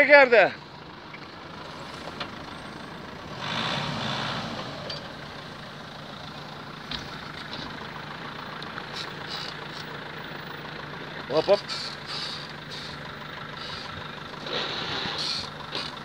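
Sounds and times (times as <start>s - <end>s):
suv engine running: 0.0s - 16.0s.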